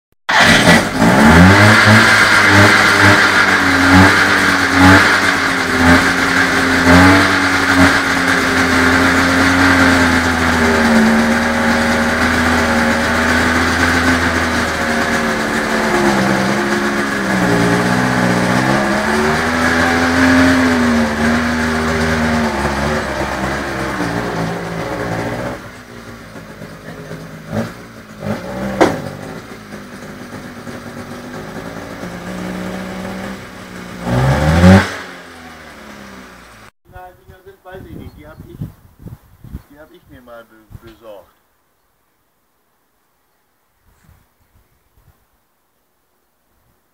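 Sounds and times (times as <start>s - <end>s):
two-stroke engine running: 0.4s - 36.7s.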